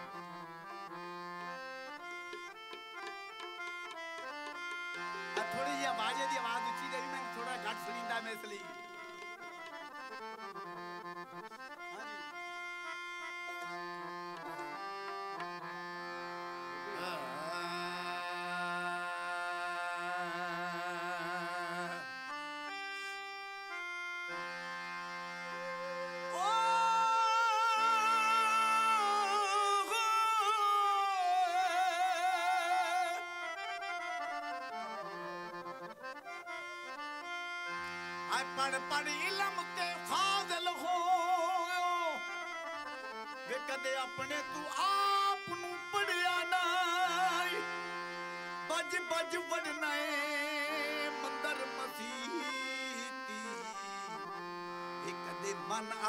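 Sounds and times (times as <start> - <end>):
folk music with held melody notes: 0.0 - 56.0
wavering melody line with vibrato: 2.0 - 9.9.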